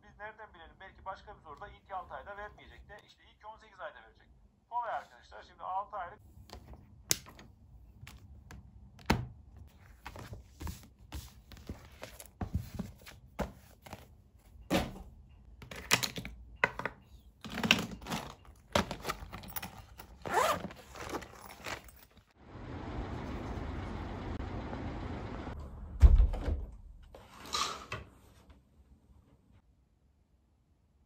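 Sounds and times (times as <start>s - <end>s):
items knocked and set down: 11.6s - 22.3s
fabric pouch zipping: 20.2s - 22.0s.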